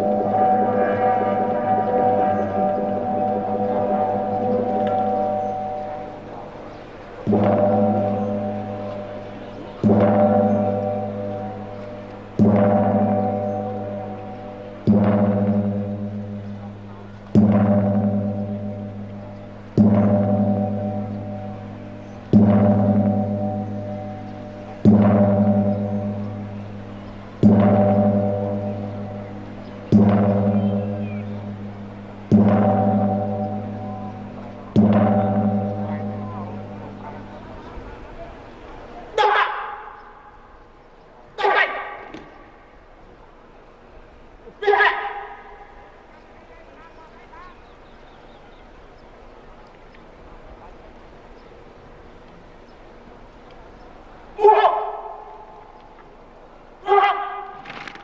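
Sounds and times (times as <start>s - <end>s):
large gong struck: 0.0s - 39.1s.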